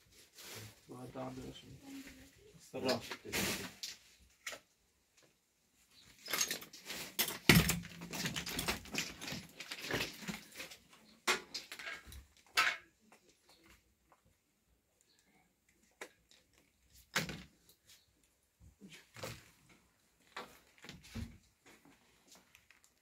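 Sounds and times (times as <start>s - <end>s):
objects knocking and clattering: 6.1s - 13.8s.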